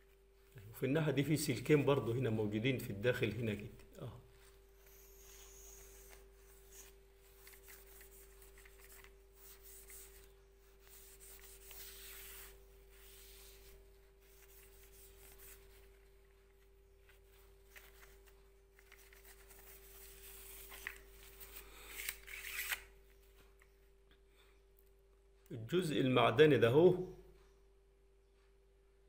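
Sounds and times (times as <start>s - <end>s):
wipe rubbing on metal: 4.5s - 16.3s.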